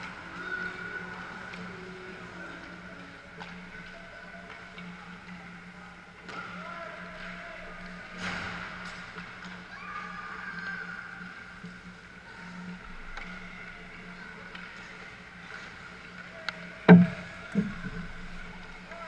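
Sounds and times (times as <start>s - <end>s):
loud thumps: 16.9s - 17.9s.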